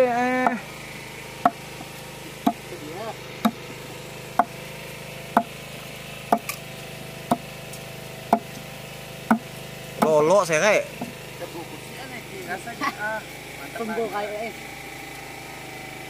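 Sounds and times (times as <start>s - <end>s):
steady low hum: 0.0s - 16.0s
machete chopping on wooden plank: 1.4s - 2.6s, 3.4s - 3.7s, 4.4s - 4.6s, 5.3s - 5.6s, 6.3s - 6.6s, 7.3s - 7.5s, 8.3s - 8.7s, 9.3s - 10.2s.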